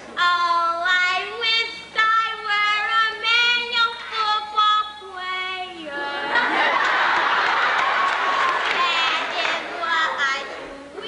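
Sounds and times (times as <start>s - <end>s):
high voice singing unaccompanied: 0.2s - 6.4s, 8.6s - 11.0s.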